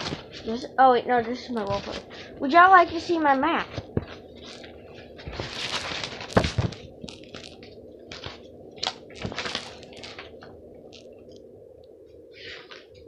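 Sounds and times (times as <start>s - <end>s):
paper crinkling and rustling: 0.0s - 0.6s, 1.5s - 2.2s, 2.8s - 11.2s.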